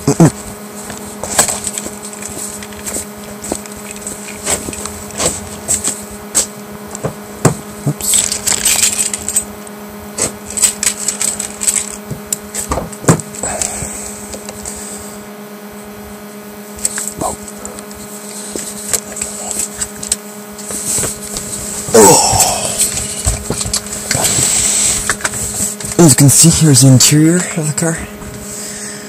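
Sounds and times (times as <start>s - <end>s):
steady electrical hum: 0.0s - 29.0s
footsteps: 0.4s - 8.0s.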